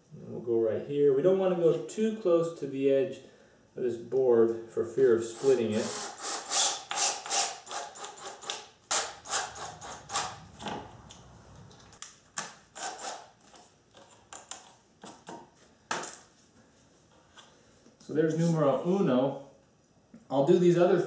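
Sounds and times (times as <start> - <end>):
hand scratching on wood: 7.7 - 10.6.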